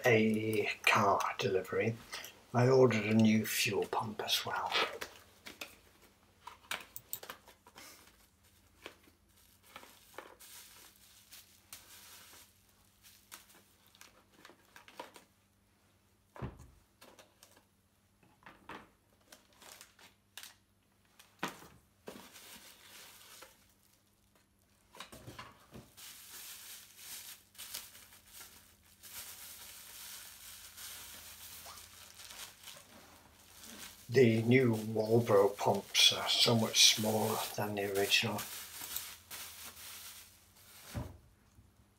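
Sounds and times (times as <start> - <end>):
packaging crinkling and tearing: 6.4 - 15.3, 19.2 - 21.5, 22.1 - 25.2, 25.9 - 41.0.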